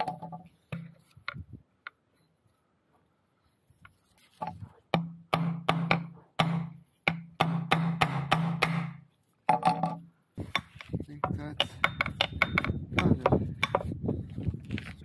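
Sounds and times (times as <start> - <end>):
hammer striking metal pin: 11.6 - 13.9.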